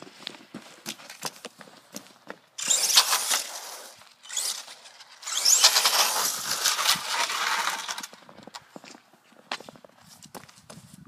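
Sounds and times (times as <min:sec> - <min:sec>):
electric motor whine: 0:02.6 - 0:08.1.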